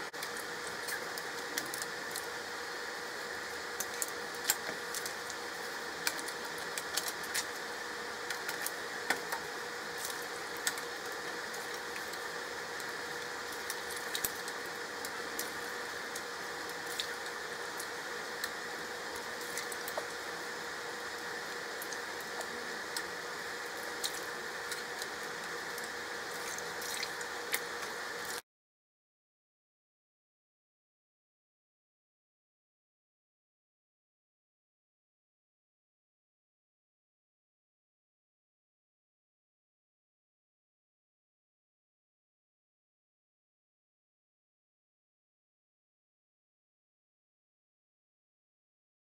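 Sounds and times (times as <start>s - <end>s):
broth boiling in a pot: 0.0s - 28.4s
faint steady hum: 0.0s - 28.4s.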